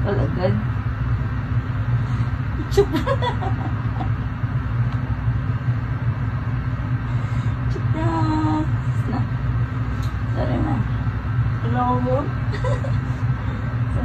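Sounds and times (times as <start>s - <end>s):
electric fan humming: 0.0s - 14.0s.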